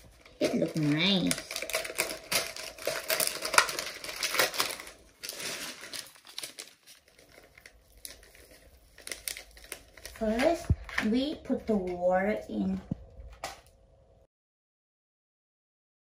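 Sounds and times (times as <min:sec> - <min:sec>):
plastic packaging crinkling: 0:00.0 - 0:11.8.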